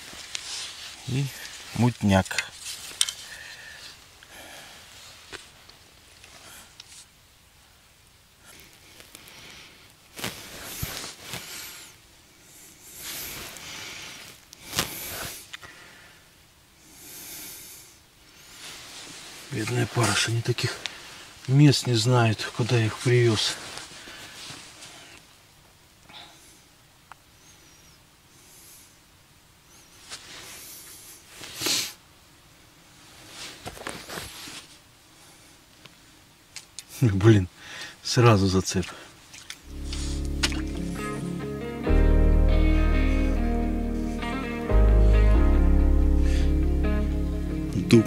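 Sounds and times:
quiet breathing: 0.0 - 1.8, 3.1 - 7.1, 8.4 - 21.5, 22.8 - 25.4, 26.0 - 32.0, 33.0 - 36.2, 36.9 - 38.1, 38.8 - 40.3, 46.1 - 46.6
rustling: 0.0 - 7.2, 8.4 - 15.9, 18.3 - 25.4, 29.8 - 32.0, 32.8 - 37.0, 39.0 - 41.5
person breathing: 3.2 - 5.2, 8.6 - 18.9, 26.1 - 26.7, 37.6 - 38.0, 46.1 - 46.7
sharp sniff: 12.7 - 15.5, 30.1 - 32.0.

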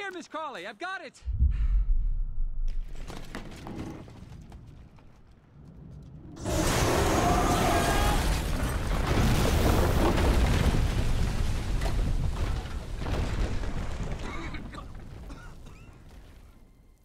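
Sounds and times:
masonry crashing down: 6.4 - 16.7
person coughing: 14.2 - 15.9.

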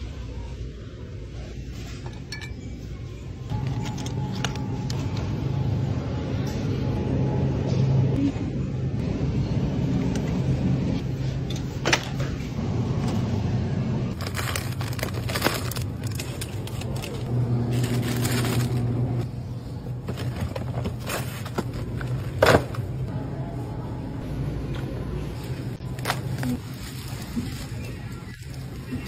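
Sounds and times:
low hum and rumble: 0.0 - 29.0
groceries knocking and rustling: 14.1 - 19.3, 19.9 - 23.1, 25.7 - 29.0.

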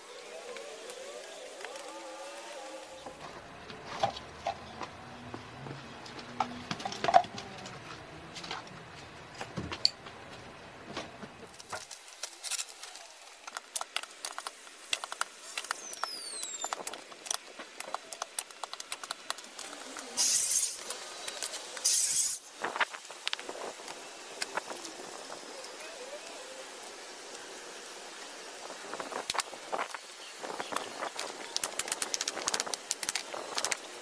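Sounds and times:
small clicks: 11.6 - 22.3.

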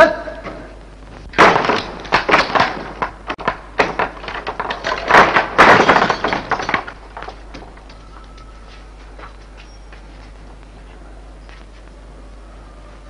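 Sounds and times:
door being barged: 1.3 - 8.1.

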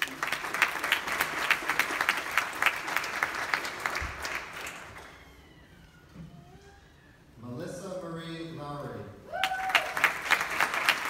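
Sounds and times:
audience applauding: 0.0 - 5.4, 9.4 - 11.0.

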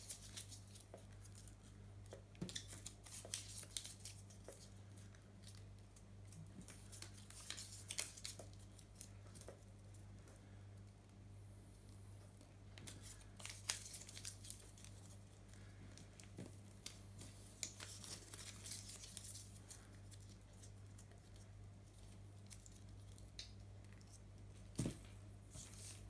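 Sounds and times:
paper crackling: 0.0 - 9.8, 12.8 - 24.2.

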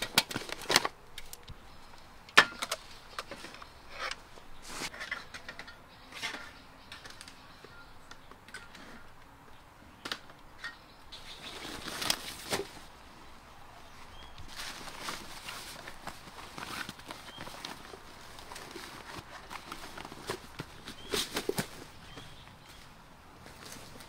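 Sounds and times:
canvas bag rustling: 14.2 - 22.8
plastic bag rustling: 14.4 - 22.4.

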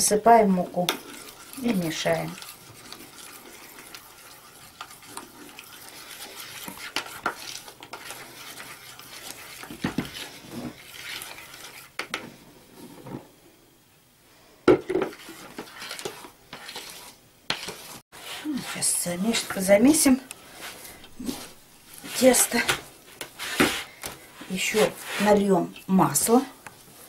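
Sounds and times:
flour rustling and scraping: 1.0 - 13.3, 15.1 - 27.0.

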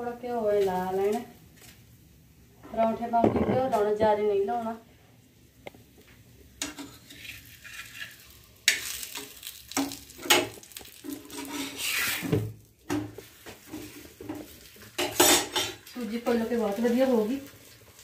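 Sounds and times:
ghee sizzling: 0.0 - 18.0
metal spatula scraping griddle: 6.6 - 12.4, 13.5 - 15.8.

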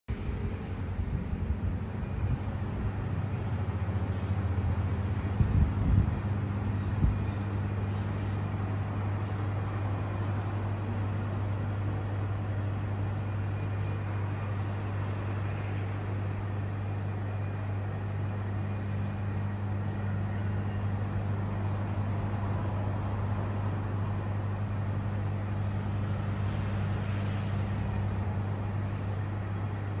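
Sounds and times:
freezer humming: 0.1 - 30.0
fan hiss: 20.9 - 30.0.

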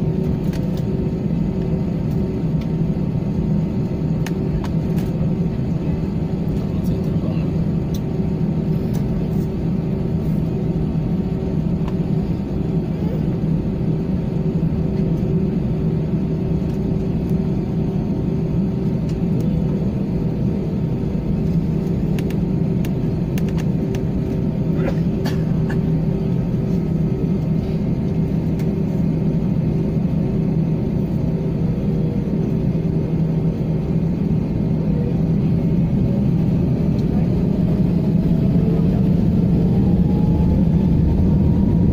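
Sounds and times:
jet engines droning: 0.0 - 41.9
wheels rumbling on runway: 32.4 - 41.9.

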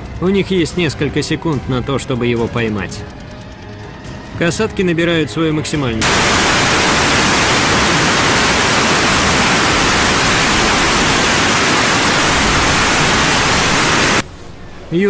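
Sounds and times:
loud steady hiss: 6.0 - 14.2.

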